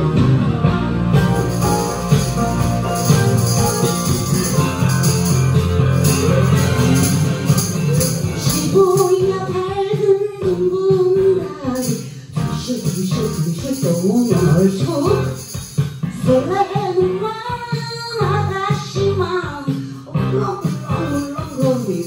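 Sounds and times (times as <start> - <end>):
karaoke backing track: 0.0 - 22.0
tambourine shaking: 1.2 - 9.6, 11.8 - 16.2, 20.5 - 22.0
woman singing into microphone: 8.4 - 15.3, 16.2 - 22.0.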